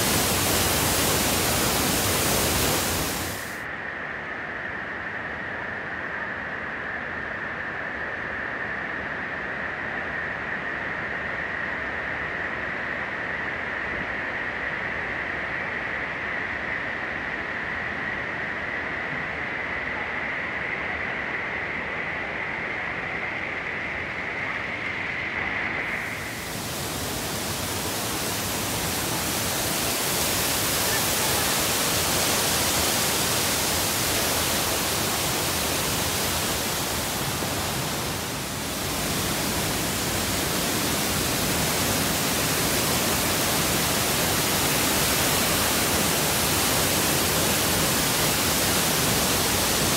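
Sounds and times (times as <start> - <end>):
waterfall rushing: 0.0 - 3.6, 25.9 - 49.9
steady high whine: 23.2 - 49.9.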